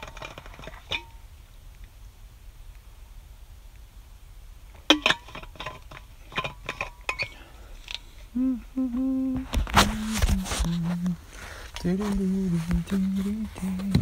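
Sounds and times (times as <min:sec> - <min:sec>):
man humming low notes: 0:08.2 - 0:11.2, 0:11.8 - 0:14.0.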